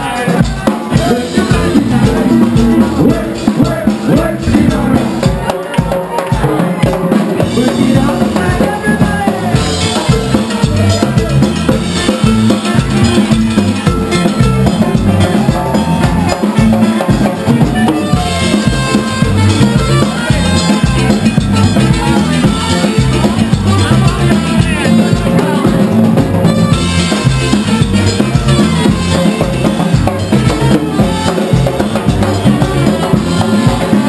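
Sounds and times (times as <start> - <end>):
electric bass: 0.0 - 5.9, 6.8 - 34.0
drum kit beat: 0.0 - 34.0
live band playing: 0.0 - 34.0
trumpet melody: 7.5 - 34.0.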